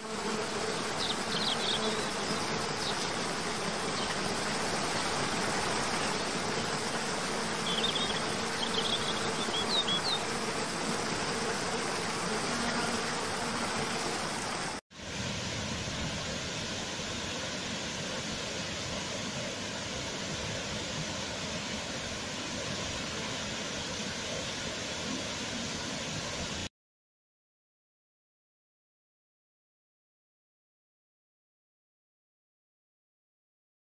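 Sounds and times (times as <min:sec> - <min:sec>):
bird chirps: 0:07.6 - 0:10.2.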